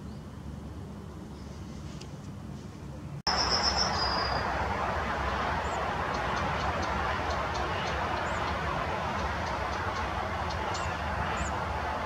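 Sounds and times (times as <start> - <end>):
rushing outdoor noise: 0.0 - 12.0
high whistled note: 3.3 - 4.4.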